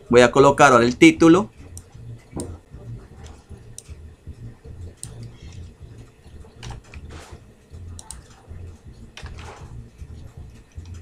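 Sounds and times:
low hum: 0:00.0 - 0:11.0
computer mouse clicks: 0:05.0 - 0:05.7, 0:06.6 - 0:07.3, 0:07.9 - 0:08.4, 0:09.1 - 0:09.6.

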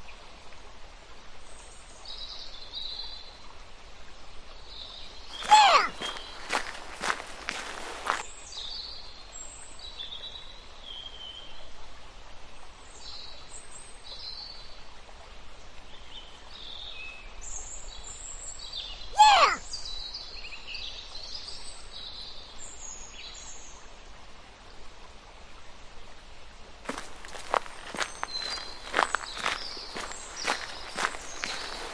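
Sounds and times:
small birds chirping: 0:05.3 - 0:08.2, 0:26.9 - 0:31.9.

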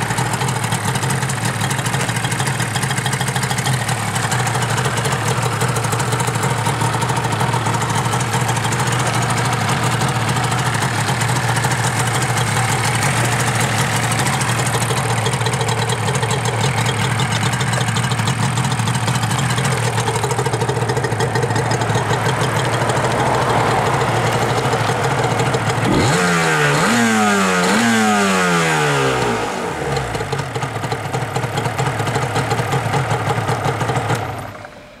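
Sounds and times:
two-stroke motorcycle engine idling: 0:00.0 - 0:35.0
engine revving: 0:22.0 - 0:30.4.

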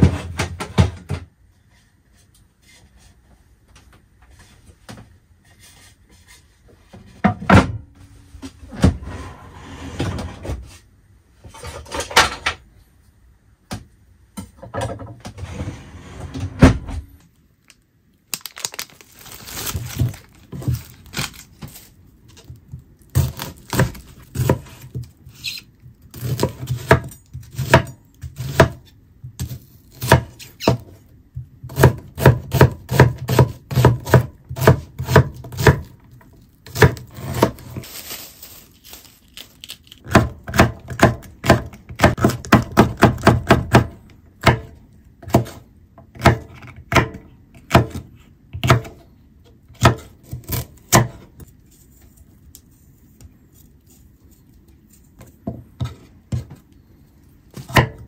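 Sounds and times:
knife chopping on wooden board: 0:23.2 - 0:25.0, 0:26.2 - 0:28.8, 0:29.4 - 0:30.8, 0:31.6 - 0:36.0, 0:36.7 - 0:37.8, 0:40.1 - 0:45.6, 0:46.2 - 0:48.0, 0:48.6 - 0:49.0, 0:49.8 - 0:51.3, 0:57.6 - 0:58.0.

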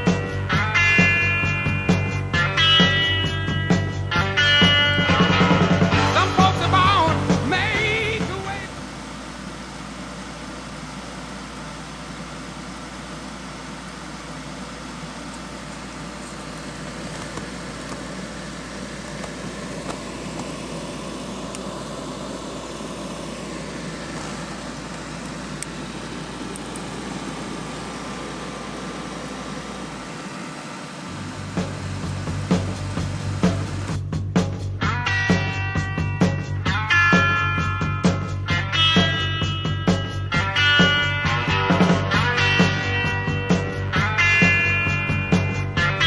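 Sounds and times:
computer fans whirring: 0:00.0 - 0:46.0.

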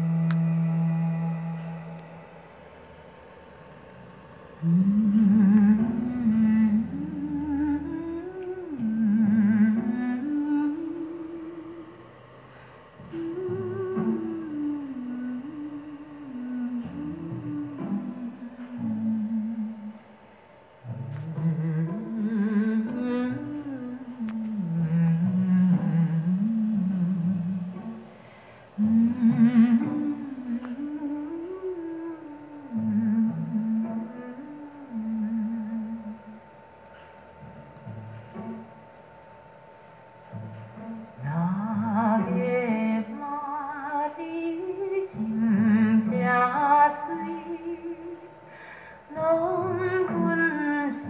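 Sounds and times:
wavering humming melody: 0:00.0 - 0:51.0.

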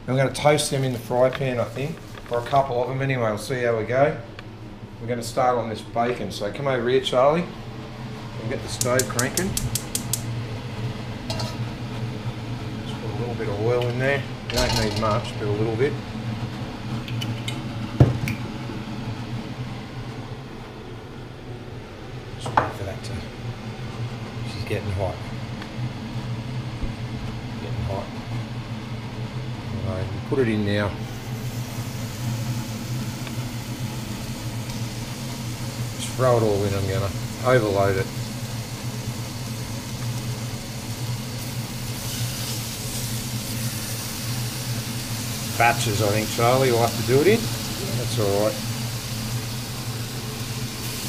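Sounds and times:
low mechanical hum: 0:00.0 - 0:51.0
bacon sizzling in hot oil: 0:08.8 - 0:12.5, 0:31.0 - 0:51.0.

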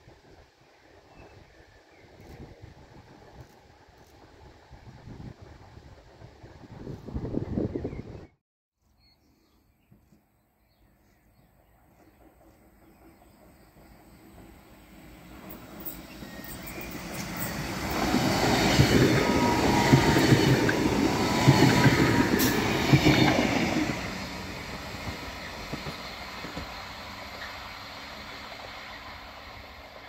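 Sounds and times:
train wheels on rails: 0:02.0 - 0:05.1, 0:11.0 - 0:30.0
distant train approaching: 0:10.8 - 0:30.0.

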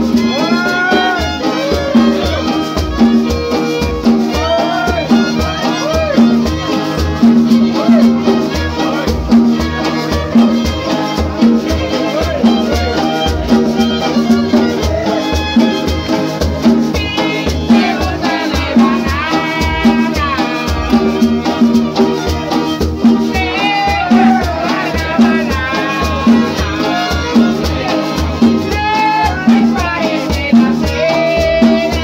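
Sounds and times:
string band playing dance tune: 0:00.0 - 0:32.0.

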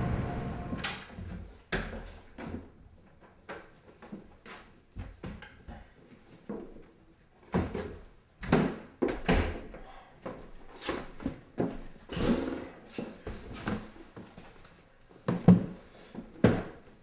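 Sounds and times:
door opening: 0:00.0 - 0:01.1.

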